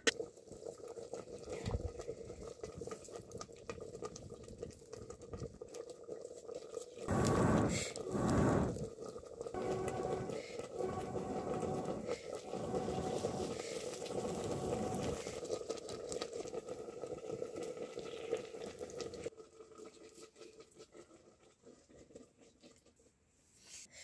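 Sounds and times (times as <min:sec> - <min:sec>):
wood fire crackling: 0:07.1 - 0:19.3
oil sizzling in ladle: 0:09.6 - 0:21.0.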